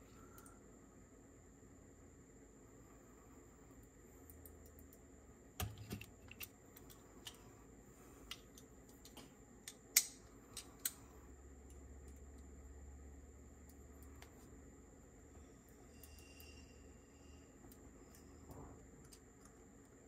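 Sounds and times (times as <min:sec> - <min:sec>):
light clicks of small metal parts: 0:03.8 - 0:05.0, 0:08.2 - 0:12.5, 0:17.6 - 0:20.0.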